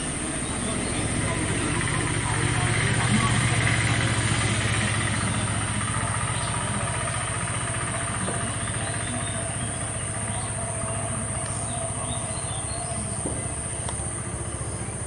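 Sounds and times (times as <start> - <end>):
engine rumbling: 0.0 - 15.0
faint bird chirps: 5.0 - 15.0.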